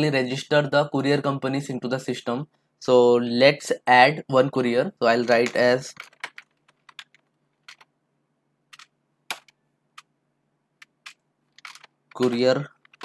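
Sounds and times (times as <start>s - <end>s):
keyboard and mouse clicks: 5.3s - 7.9s, 8.7s - 10.1s, 10.8s - 13.0s.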